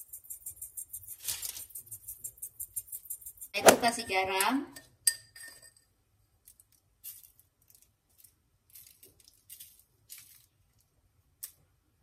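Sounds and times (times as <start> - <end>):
salt sprinkling rustles: 1.0 - 1.9, 6.4 - 11.6.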